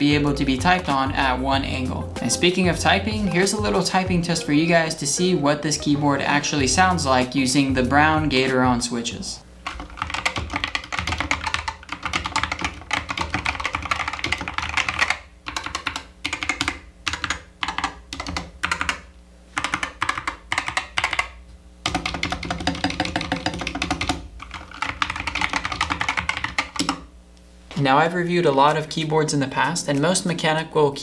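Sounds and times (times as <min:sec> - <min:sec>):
mechanical keyboard typing: 0:09.7 - 0:27.0.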